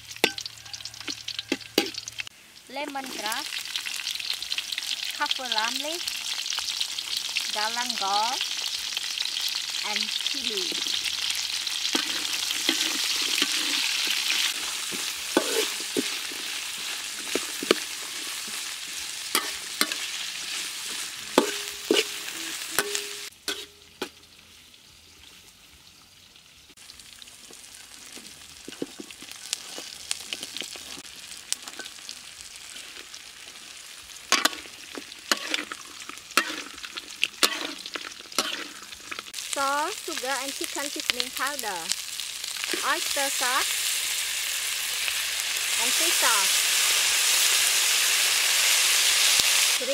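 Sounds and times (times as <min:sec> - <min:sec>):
metal spatula scraping wok: 0:00.0 - 0:02.3, 0:08.0 - 0:24.2, 0:28.1 - 0:39.4
food sizzling in hot oil: 0:00.0 - 0:49.9.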